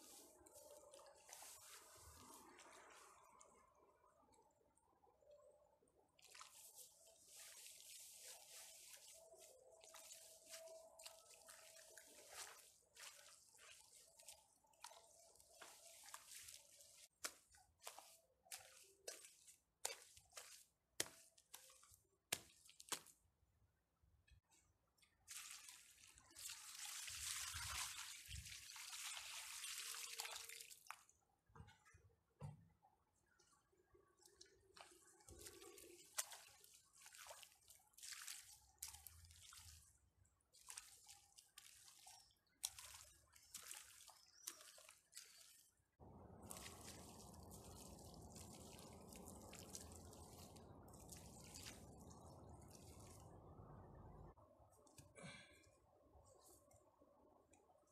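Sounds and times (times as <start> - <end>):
water splashing onto soil: 0.0 - 3.5, 6.2 - 23.3, 25.2 - 31.1, 34.7 - 53.6
mud slurry trickling and dripping: 0.0 - 23.4, 24.3 - 31.8, 33.2 - 57.9.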